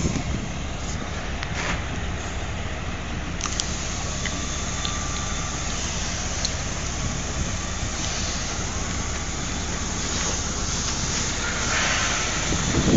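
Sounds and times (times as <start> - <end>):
locomotive engine rumbling: 0.0 - 12.9
sharp clicks: 3.4 - 5.0.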